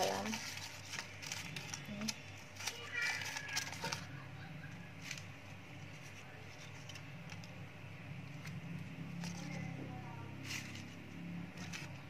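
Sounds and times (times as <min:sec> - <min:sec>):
leaves rustling: 0:00.0 - 0:04.1, 0:08.4 - 0:12.0
steady low hum: 0:03.5 - 0:12.0.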